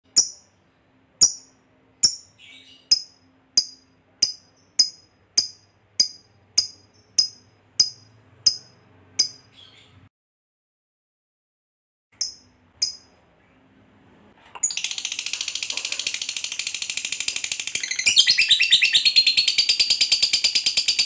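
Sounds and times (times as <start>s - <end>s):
lovebird clicking chip notes: 1.2s - 9.4s, 12.2s - 13.1s.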